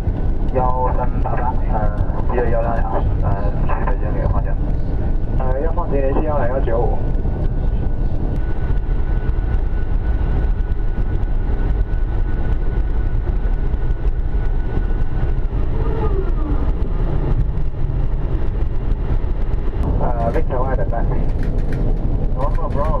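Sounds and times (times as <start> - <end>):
airliner rumble on runway: 0.0 - 23.0
thin steady whine: 0.0 - 23.0.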